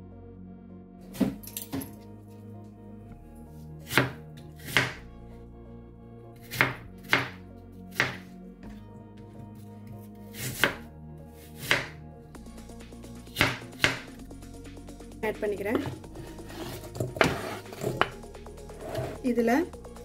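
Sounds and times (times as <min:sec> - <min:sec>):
knife strikes on chopping board: 0:03.9 - 0:05.0, 0:06.5 - 0:07.4, 0:08.0 - 0:08.2, 0:11.6 - 0:12.0, 0:13.4 - 0:14.1.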